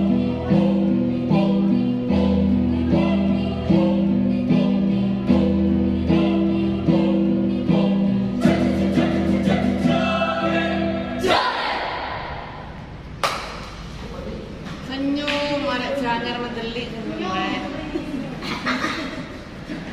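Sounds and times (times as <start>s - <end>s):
youth choir singing: 0.0s - 12.8s.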